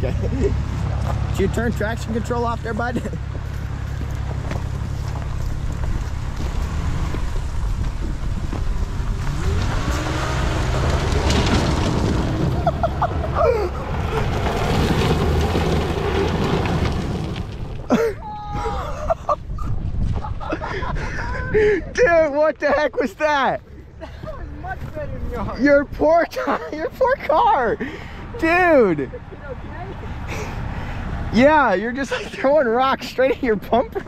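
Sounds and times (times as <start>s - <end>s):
car engine running hard: 0.0s - 18.2s
tyres spinning on gravel: 0.0s - 19.2s
rocks spraying into bumper: 5.8s - 13.1s, 13.9s - 17.9s.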